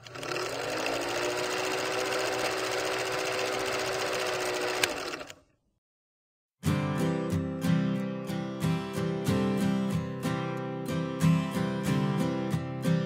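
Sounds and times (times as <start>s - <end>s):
film projector clatter: 0.0s - 5.4s.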